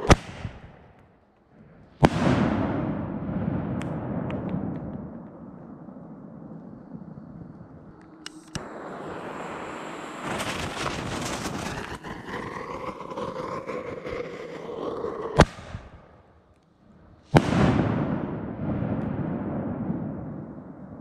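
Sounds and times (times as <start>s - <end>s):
firework bangs with rolling echo: 2.0s - 7.9s, 17.3s - 21.0s
wind on microphone: 3.8s - 8.7s.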